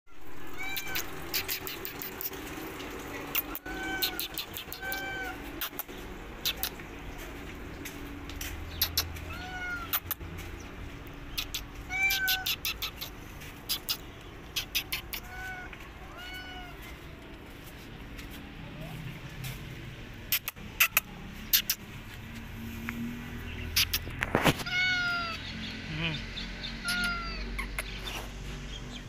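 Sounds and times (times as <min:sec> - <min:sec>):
cat meowing: 0:00.4 - 0:01.5, 0:03.4 - 0:05.5, 0:09.2 - 0:10.1, 0:11.9 - 0:13.0, 0:14.8 - 0:16.9, 0:24.5 - 0:25.4, 0:26.8 - 0:27.7
sharp clicks: 0:00.8 - 0:06.9.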